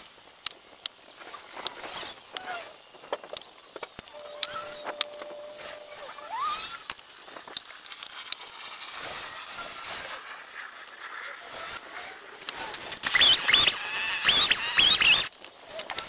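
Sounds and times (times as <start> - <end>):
short steady tone: 4.1 - 6.2
high rising squeak: 4.1 - 15.3.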